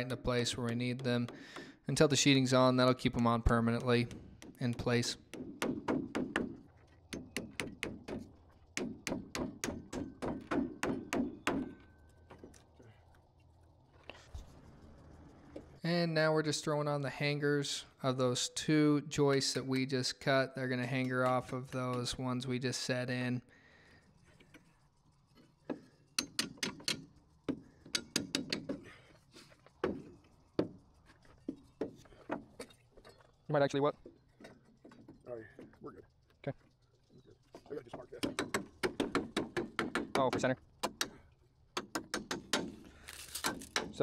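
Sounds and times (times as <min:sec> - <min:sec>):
hammer hitting nail into wood: 0:03.6 - 0:08.2, 0:08.8 - 0:11.8, 0:26.2 - 0:27.1, 0:27.9 - 0:28.8, 0:38.2 - 0:41.2, 0:41.8 - 0:42.8.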